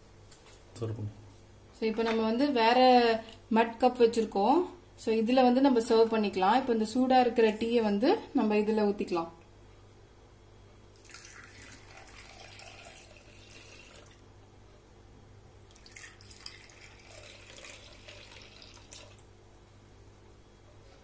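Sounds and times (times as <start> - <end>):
liquid trickling into cups: 11.0 - 14.2, 15.7 - 19.3.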